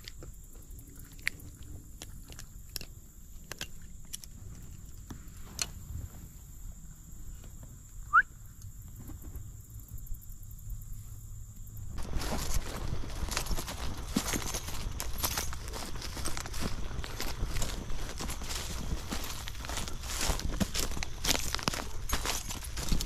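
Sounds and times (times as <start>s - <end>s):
fishing gear clicks and rustles: 12.0s - 23.0s.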